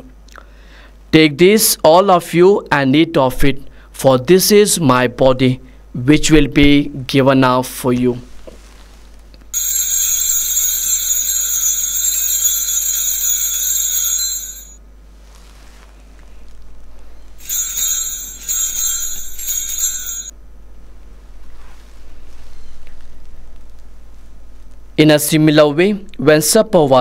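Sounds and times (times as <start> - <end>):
altar bells ringing: 9.6 - 14.8, 17.4 - 20.4.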